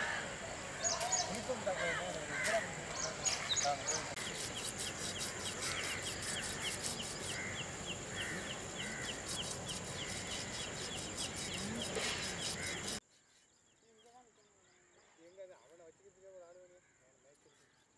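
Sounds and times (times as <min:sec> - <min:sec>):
knife scraping fish scales: 0:04.2 - 0:13.4.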